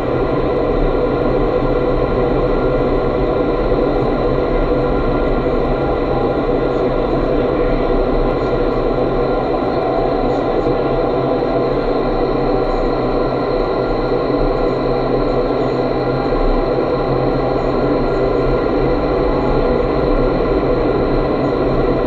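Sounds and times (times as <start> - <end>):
fan hum: 0.0 - 22.0.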